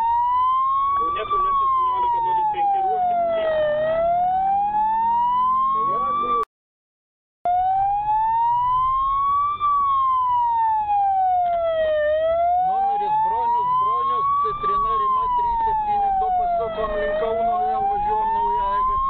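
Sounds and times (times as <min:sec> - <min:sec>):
police siren wailing: 0:00.0 - 0:06.5, 0:07.5 - 0:19.0
car engine and road rumble: 0:07.5 - 0:19.0.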